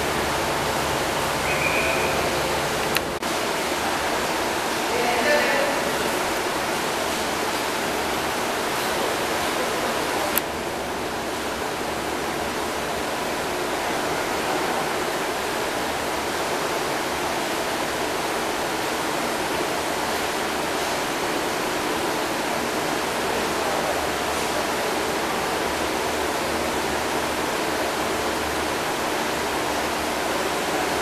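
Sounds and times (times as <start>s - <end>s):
aquarium air bubbling: 0.0s - 3.2s.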